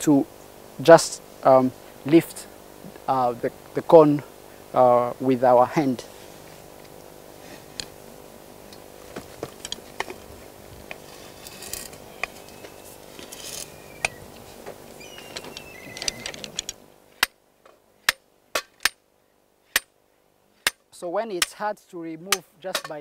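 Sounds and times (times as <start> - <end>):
steel rod clinking and scraping: 10.9 - 13.8
sharp metal knocks: 19.7 - 19.9.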